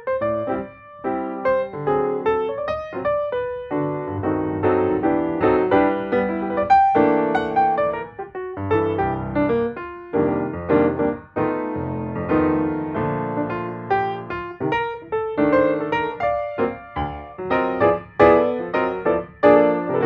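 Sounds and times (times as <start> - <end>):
piano music: 0.0 - 20.0.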